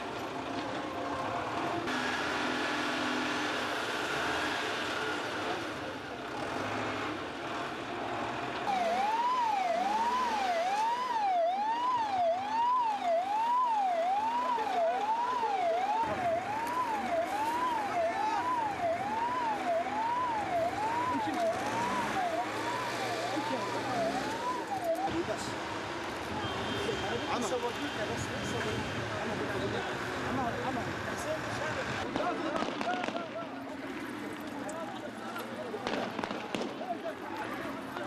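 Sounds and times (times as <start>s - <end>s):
ambulance siren wailing: 8.6s - 25.5s
voices: 8.7s - 38.0s.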